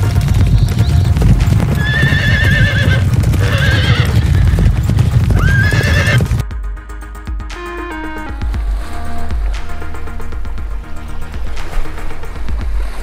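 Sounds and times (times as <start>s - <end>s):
hooves galloping: 0.0s - 6.4s
horses whinnying: 0.0s - 6.4s.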